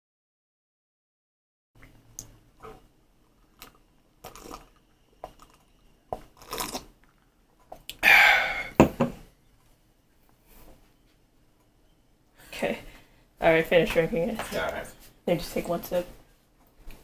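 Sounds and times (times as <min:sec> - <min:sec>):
person sipping and swallowing: 0:03.4 - 0:05.6, 0:06.2 - 0:08.8
glass knocking on countertop: 0:08.8 - 0:09.2.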